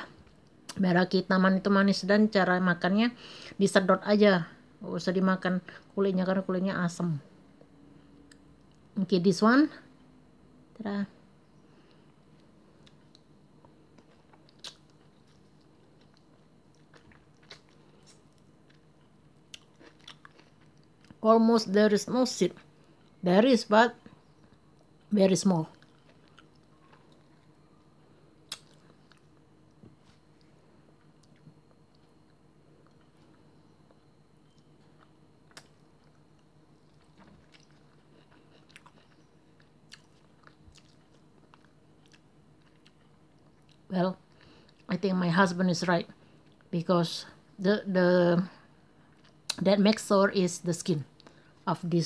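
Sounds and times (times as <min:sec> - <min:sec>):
person chewing wet smacks: 0:12.4 - 0:21.2, 0:25.7 - 0:27.5, 0:28.5 - 0:33.3, 0:33.9 - 0:43.9
wet mouth sounds of eating: 0:14.0 - 0:15.4.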